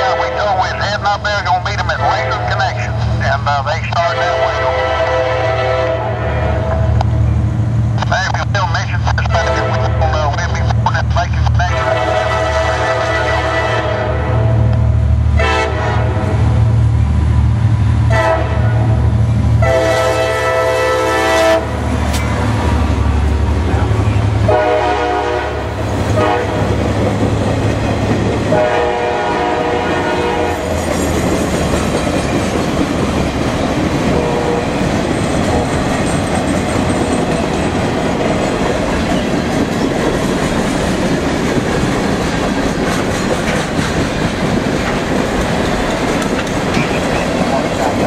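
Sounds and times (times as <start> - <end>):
freight train rumbling: 0.0 - 48.0
train horn blasts: 4.0 - 6.8, 9.3 - 10.2, 11.6 - 16.4, 18.1 - 21.8, 24.4 - 26.8, 28.5 - 30.8, 34.1 - 34.8
wheels clacking over rail joints: 30.7 - 34.2, 34.8 - 48.0.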